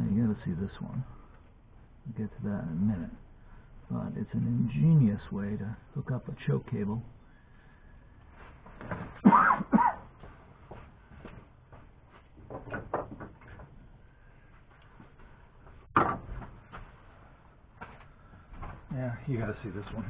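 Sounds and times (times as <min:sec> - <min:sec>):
handling knocks and clunks: 0:12.3 - 0:13.8, 0:15.8 - 0:17.0.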